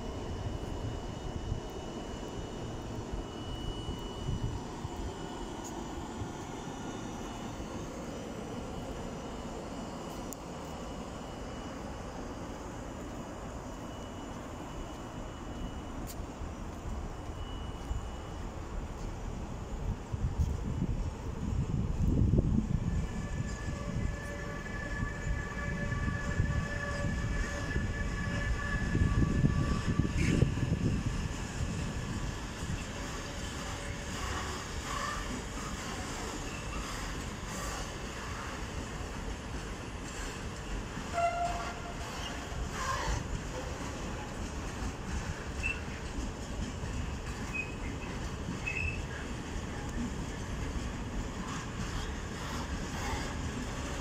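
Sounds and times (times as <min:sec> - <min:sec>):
faint high whine: 0:00.0 - 0:51.8
wheels on rails: 0:13.0 - 0:54.0.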